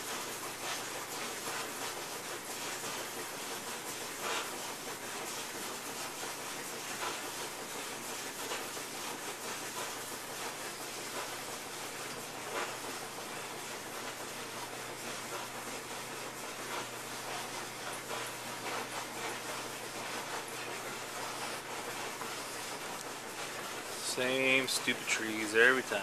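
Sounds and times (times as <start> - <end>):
steady hiss: 7.8 - 26.0
paintbrush scrubbing canvas: 15.1 - 26.0.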